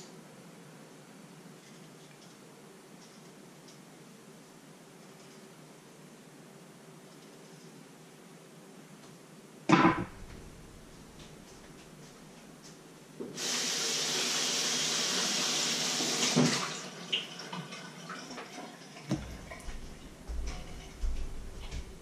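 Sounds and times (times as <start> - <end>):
kitchen tap running: 13.4 - 21.9.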